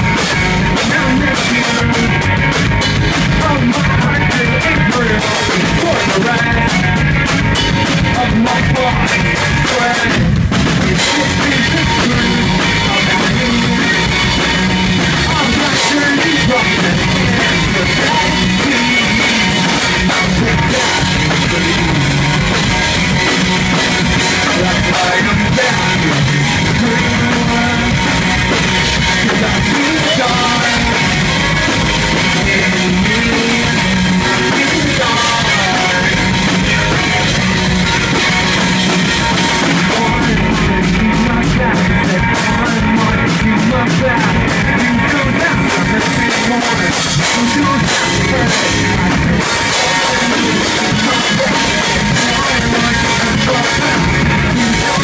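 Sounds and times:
drum kit: 0.0 - 55.0
electric guitars: 0.0 - 55.0.

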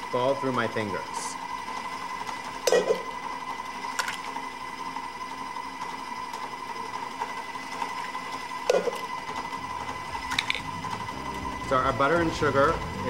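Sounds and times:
electric stand mixer running: 0.0 - 13.0.

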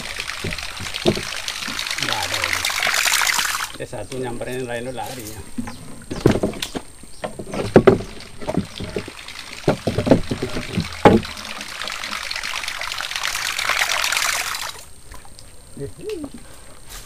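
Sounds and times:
knocks against wooden hull: 0.3 - 1.8, 5.6 - 11.6.

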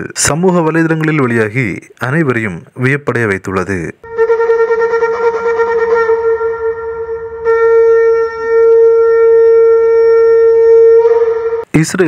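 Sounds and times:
ram's horn long note: 4.0 - 11.7.

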